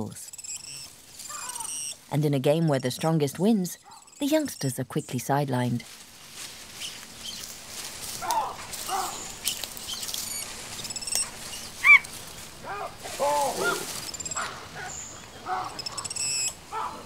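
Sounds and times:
monkeys calling: 0.4 - 2.0, 6.8 - 17.0
branches rustling: 0.5 - 3.0, 5.6 - 17.0.

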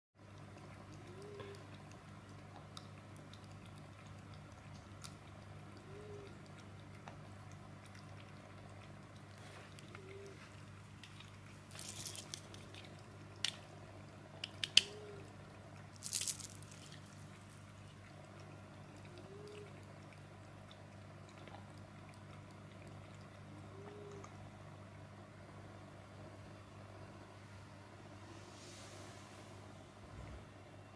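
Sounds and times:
cat lapping water: 0.2 - 11.7, 17.0 - 24.2
steady low hum: 0.2 - 30.9.

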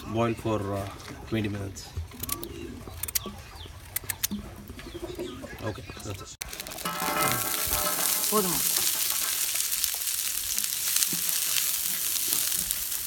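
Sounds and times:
onions sizzling in hot oil: 6.4 - 13.0
wooden spatula stirring: 6.4 - 13.0.

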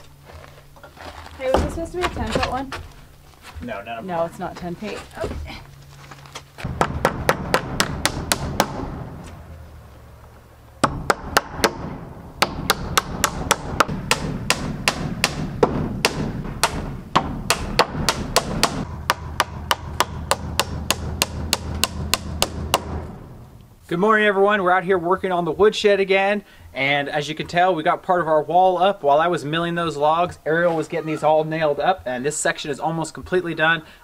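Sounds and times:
hammer striking nails into wood: 6.6 - 9.0, 10.8 - 23.1.

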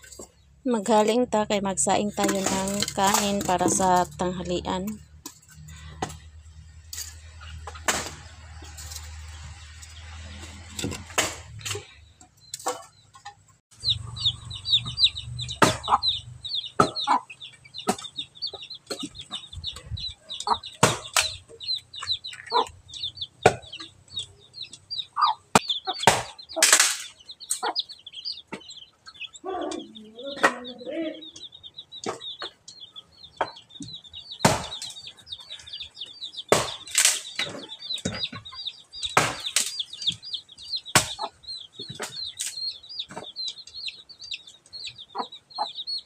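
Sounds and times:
birds chirping: 0.0 - 46.0
chopping strikes on wood: 15.6 - 16.0, 16.8 - 17.0, 20.8 - 21.4, 23.4 - 23.7, 25.5 - 27.0, 34.4 - 34.9, 36.5 - 38.3, 39.1 - 39.7, 41.0 - 42.1.

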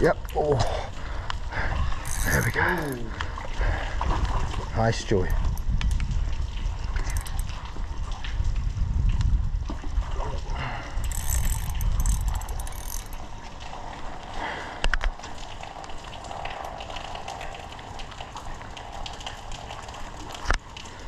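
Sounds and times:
wind and handling rumble: 0.0 - 21.0
fishing reel clicking: 2.0 - 3.0, 7.0 - 7.5, 11.0 - 13.2.

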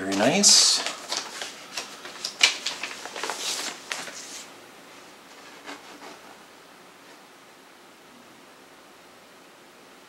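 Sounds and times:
plastic sleeve crinkling: 0.0 - 4.5.

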